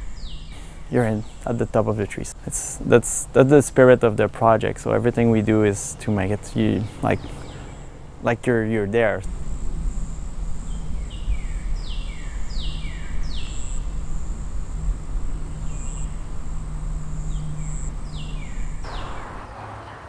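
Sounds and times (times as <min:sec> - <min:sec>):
birds whistling: 0:00.0 - 0:01.5, 0:05.9 - 0:08.2, 0:09.0 - 0:19.6
high insect buzz: 0:00.0 - 0:19.5
low steady hum: 0:00.0 - 0:19.6.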